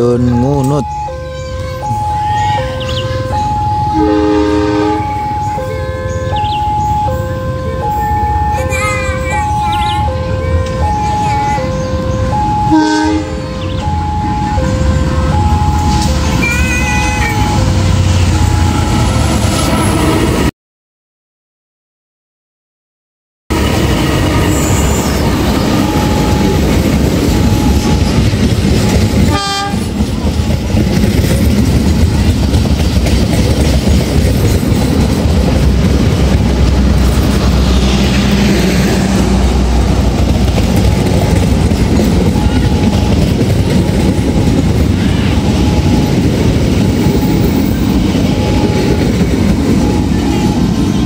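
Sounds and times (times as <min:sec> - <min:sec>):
diesel locomotive passing: 0:00.0 - 0:20.5, 0:23.5 - 0:51.0
train wheels clattering over rail joints: 0:25.4 - 0:50.8.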